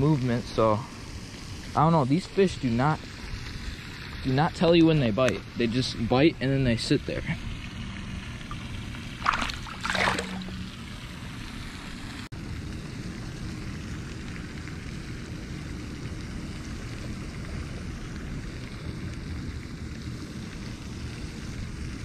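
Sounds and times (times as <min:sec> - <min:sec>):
fish splashing at surface: 0:08.5 - 0:11.1.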